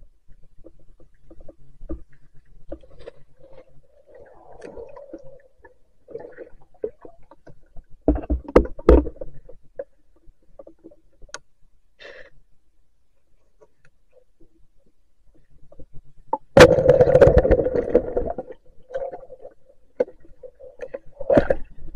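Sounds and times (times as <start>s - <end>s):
underwater gurgling: 0.0s - 11.2s, 15.7s - 21.9s.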